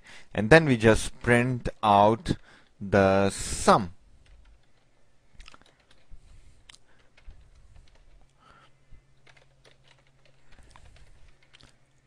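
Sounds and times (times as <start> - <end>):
low steady hum: 0.0 - 12.0
keyboard typing: 4.2 - 6.1, 6.8 - 8.4, 9.2 - 11.8.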